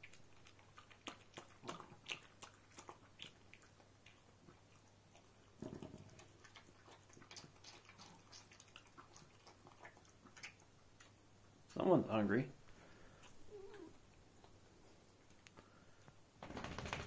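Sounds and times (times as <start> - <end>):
dog lapping and chewing: 0.0 - 11.7.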